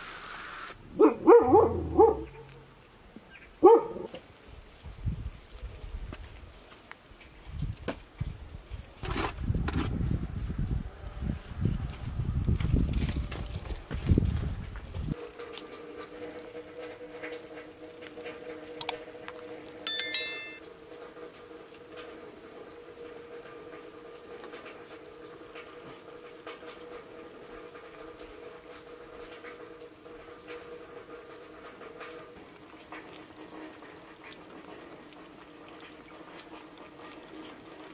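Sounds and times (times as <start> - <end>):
bright ringing chime: 19.9 - 20.6
clicks and rustles of eating: 23.4 - 37.9.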